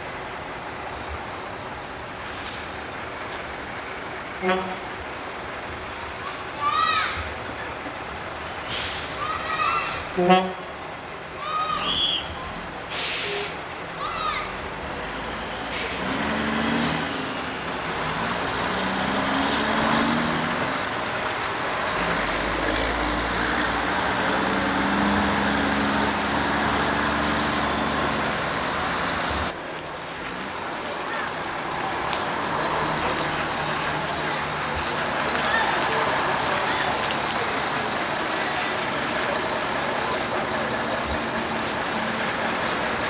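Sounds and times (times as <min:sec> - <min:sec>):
air brake hisses: 0:08.7 - 0:09.2, 0:12.9 - 0:13.6, 0:15.6 - 0:16.1
diesel truck engine revving: 0:14.6 - 0:29.6, 0:30.4 - 0:43.0.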